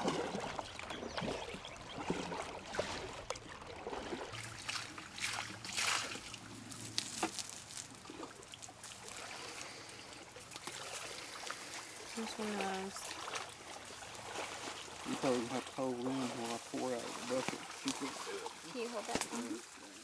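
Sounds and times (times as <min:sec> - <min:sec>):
bucket dipped into water: 0:00.0 - 0:09.0
person wading in water: 0:00.0 - 0:20.0
river water splashing and trickling: 0:00.0 - 0:20.0.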